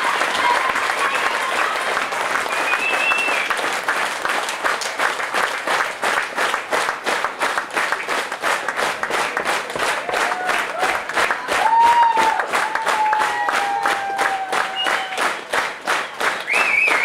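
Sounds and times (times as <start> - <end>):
audience clapping in unison: 0.0 - 17.0
short whistle: 2.5 - 3.5, 16.3 - 17.0.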